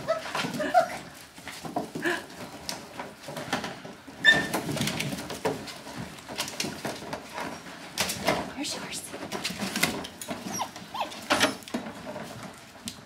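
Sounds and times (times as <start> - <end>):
puppies squeaking and whimpering: 0.0 - 1.1, 4.2 - 4.6, 10.3 - 11.7
scrabbling against plastic tubs: 0.0 - 13.0.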